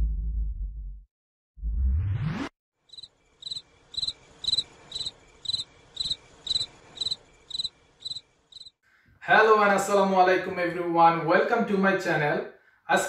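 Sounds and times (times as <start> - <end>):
cricket chirping: 2.8 - 8.8.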